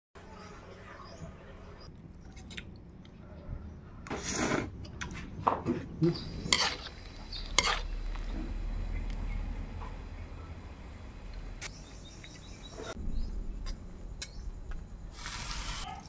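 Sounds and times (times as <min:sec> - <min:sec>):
utensil scraping: 0:06.1 - 0:08.0.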